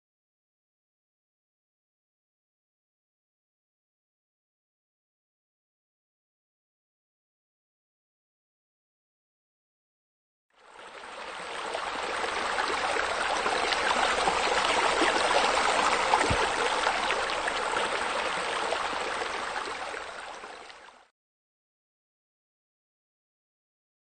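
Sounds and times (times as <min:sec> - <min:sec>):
running water: 0:10.6 - 0:21.1.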